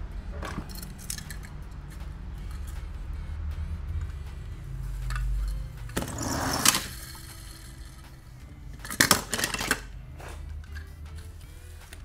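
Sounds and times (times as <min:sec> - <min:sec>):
toy cars clattering: 0:00.3 - 0:03.1, 0:03.8 - 0:12.0
clicks and knocks of toys: 0:00.4 - 0:02.9, 0:08.8 - 0:09.9.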